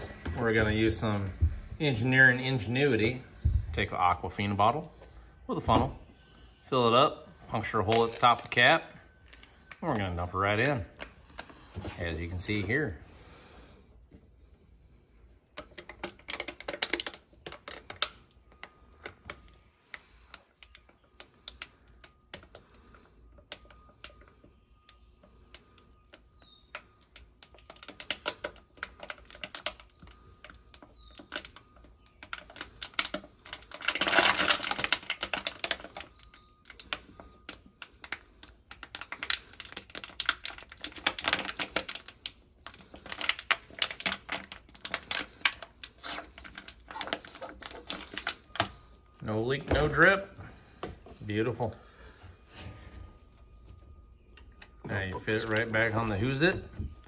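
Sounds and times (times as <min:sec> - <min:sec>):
plastic bottle crinkling: 0:15.4 - 0:57.0.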